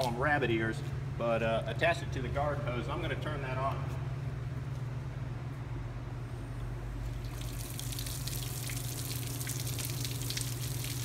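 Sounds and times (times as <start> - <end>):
steady low hum: 0.0 - 11.0
water splashing onto pavement: 7.2 - 11.0.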